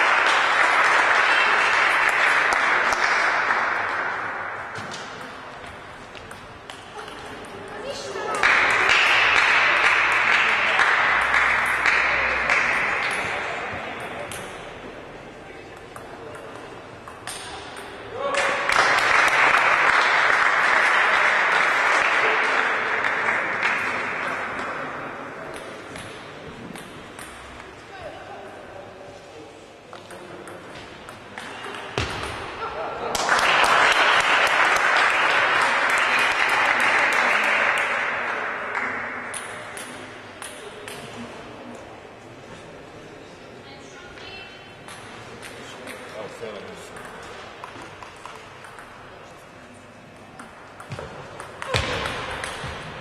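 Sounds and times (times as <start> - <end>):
spectators applauding: 0.0 - 4.4, 8.4 - 13.1, 18.4 - 24.5, 33.1 - 39.0.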